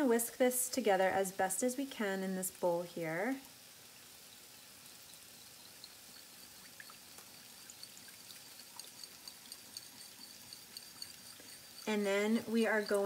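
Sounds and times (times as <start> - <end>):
whisk wires ticking on glass: 4.7 - 13.0
liquid swishing: 5.8 - 13.0.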